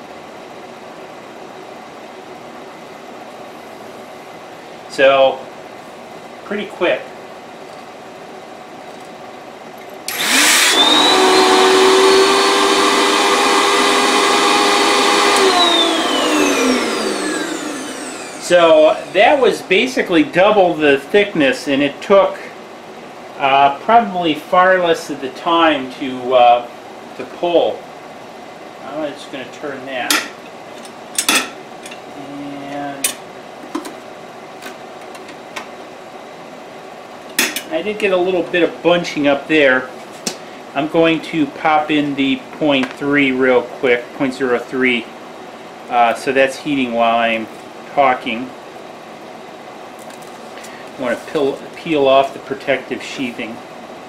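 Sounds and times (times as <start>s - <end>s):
vacuum motor whining: 10.1s - 19.4s.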